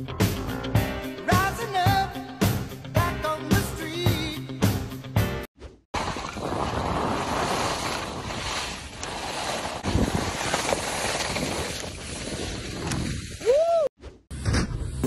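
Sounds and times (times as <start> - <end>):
wind buffeting microphone: 6.3 - 13.5
board carving across snow: 6.6 - 13.4.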